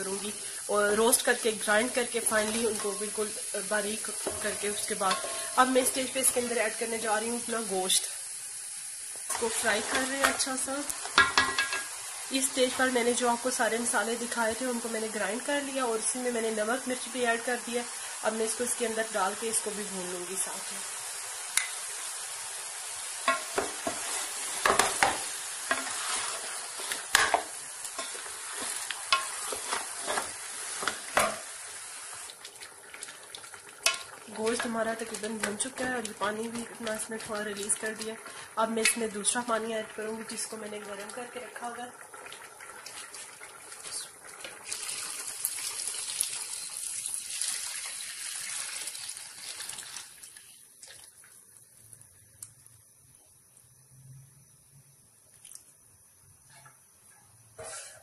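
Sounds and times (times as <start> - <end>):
meat sizzling in hot oil: 0.0 - 53.0
spatula knocking and scraping pot: 4.2 - 6.0, 11.1 - 11.9, 23.3 - 31.4
water pouring into a pot: 25.3 - 38.6, 39.2 - 52.2.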